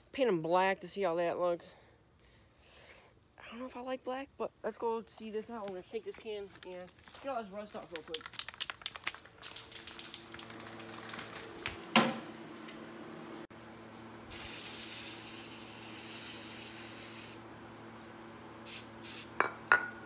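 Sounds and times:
aerosol spray can hissing: 0:14.3 - 0:17.4, 0:18.7 - 0:19.4.

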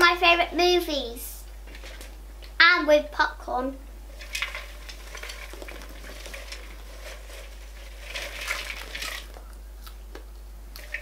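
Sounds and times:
popcorn rustling in a glass bowl: 0:01.6 - 0:02.3, 0:04.0 - 0:09.8, 0:10.8 - 0:11.0.

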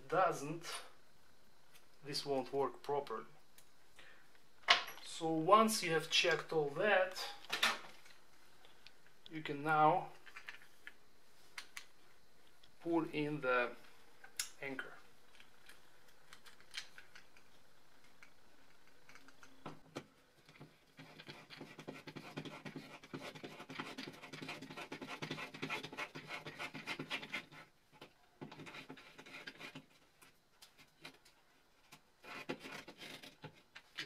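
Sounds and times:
anchor scratching into drywall: 0:21.0 - 0:27.7, 0:28.4 - 0:30.0, 0:32.2 - 0:34.0.

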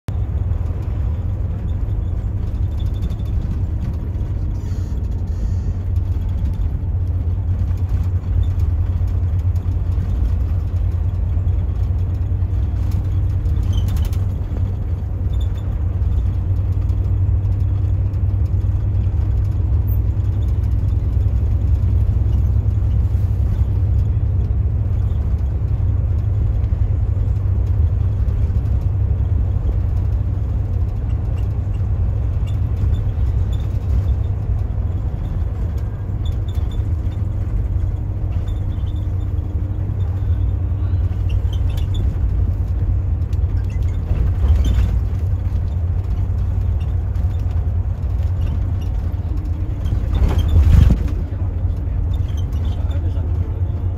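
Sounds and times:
coach engine and road rumble: 0:00.0 - 0:53.9.

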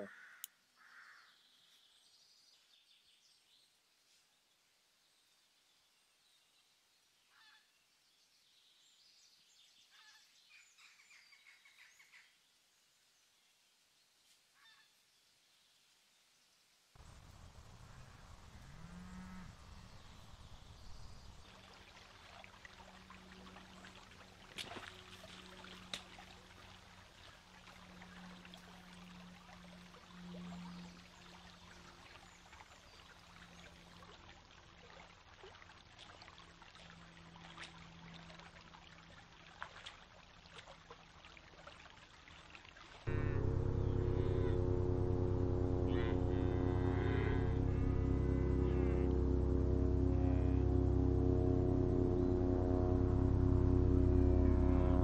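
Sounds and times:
low steady hum: 0:17.0 - 0:34.2, 0:43.1 - 0:55.0
stream trickling: 0:17.0 - 0:44.4.

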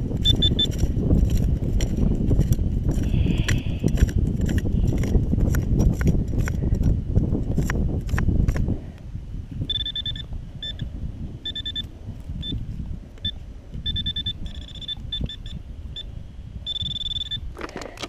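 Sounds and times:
metal detector beeping: 0:00.2 - 0:00.9, 0:09.6 - 0:18.0.

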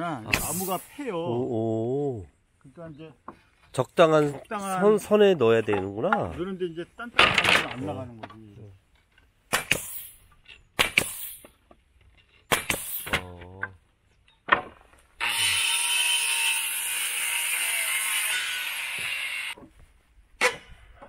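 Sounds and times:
nail puller sharp cracks: 0:09.5 - 0:10.2, 0:10.8 - 0:11.5, 0:12.5 - 0:13.2.

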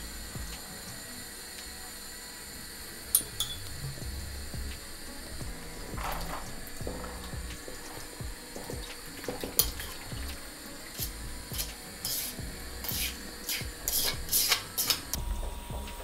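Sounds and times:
metal utensil clinking: 0:03.1 - 0:03.7, 0:10.9 - 0:15.2
utensil scraping cookware: 0:05.5 - 0:15.2.

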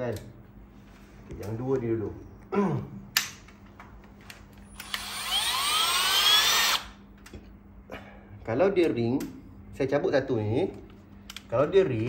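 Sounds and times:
cordless drill motor whine: 0:04.7 - 0:07.0.

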